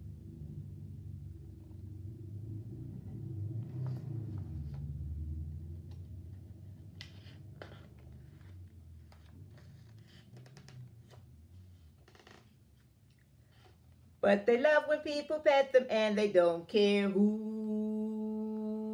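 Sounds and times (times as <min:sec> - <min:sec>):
low rumble: 0:00.0 - 0:06.9
book pages turning: 0:05.9 - 0:13.6.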